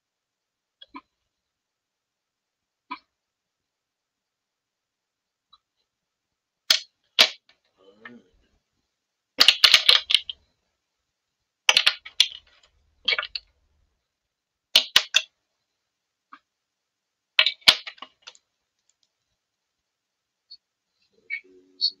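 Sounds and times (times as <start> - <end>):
pens clattering on glass desk: 9.4 - 10.4, 11.7 - 13.4, 14.8 - 15.3, 17.4 - 18.4.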